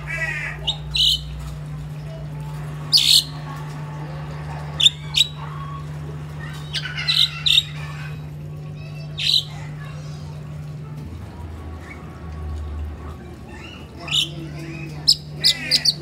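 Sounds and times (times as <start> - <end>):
myna squawking and chirping: 0.0 - 1.4, 4.8 - 5.8, 6.4 - 8.1, 13.7 - 16.0.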